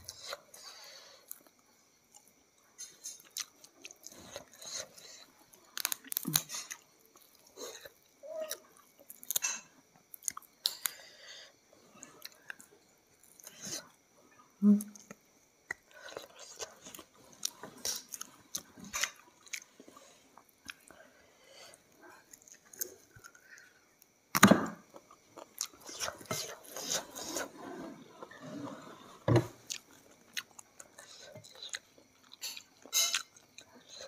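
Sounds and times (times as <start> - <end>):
chewing fried chicken: 29.6 - 34.0.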